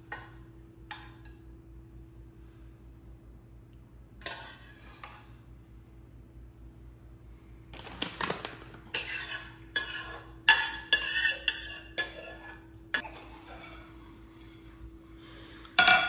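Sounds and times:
metal spoon scraping a frying pan: 4.2 - 5.4, 8.9 - 12.7.

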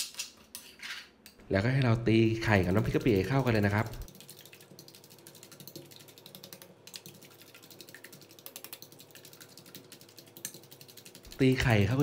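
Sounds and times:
fork beating eggs in metal bowl: 2.4 - 12.0.

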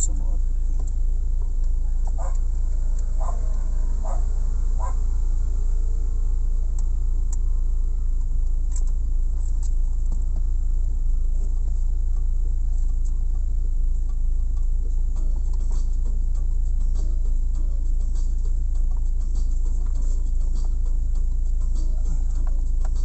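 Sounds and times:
sharp clicks behind dashboard: 0.0 - 3.6, 6.7 - 10.6, 11.4 - 13.4, 14.6 - 16.4
car engine idling: 0.0 - 23.0.

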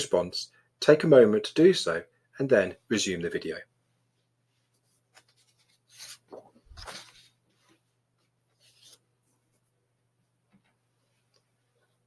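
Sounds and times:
faint rustling and rubbing: 3.9 - 12.0.

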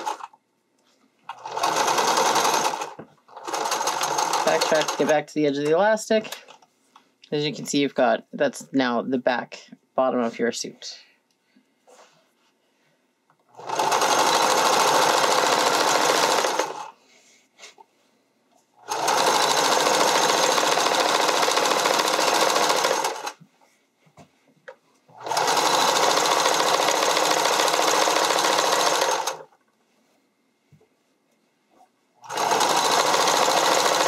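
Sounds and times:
sewing machine stitching: 0.0 - 0.4, 1.3 - 5.2, 13.5 - 16.9, 18.8 - 23.4, 25.1 - 29.6, 32.2 - 34.0.

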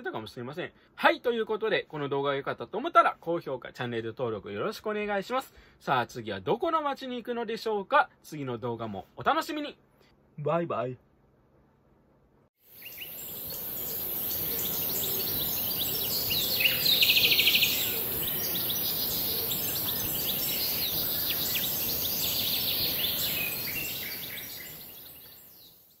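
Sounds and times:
steady high hiss: 12.6 - 25.7
fast loud bird trill: 12.7 - 25.8
birds chirping: 12.7 - 26.0.

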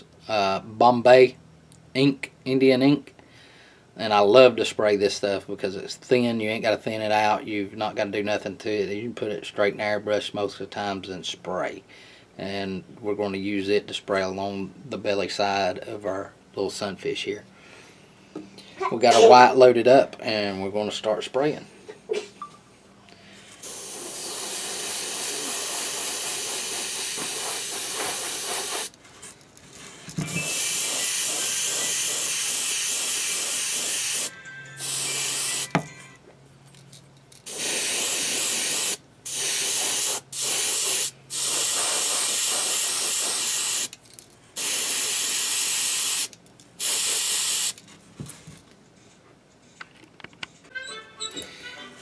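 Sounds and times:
airbrush spraying hiss: 23.6 - 28.9, 30.4 - 35.7, 37.5 - 43.9, 44.6 - 47.8.

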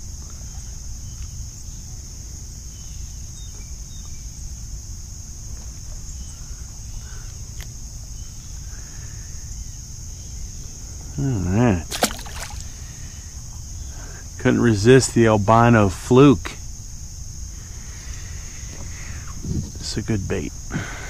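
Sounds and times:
insect chorus drone: 0.0 - 21.0
constant low rumble: 12.5 - 21.0.

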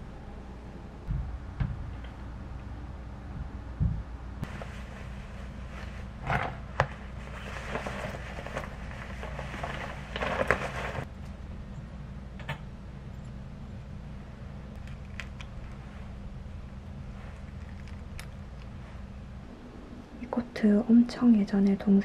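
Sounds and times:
steady low hum: 0.0 - 22.0
cloth rustling: 4.4 - 11.1.

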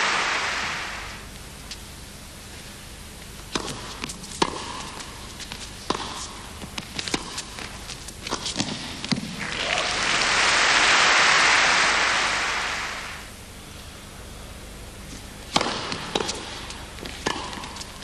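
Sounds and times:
crowd applauding: 0.0 - 1.2, 9.4 - 13.3.

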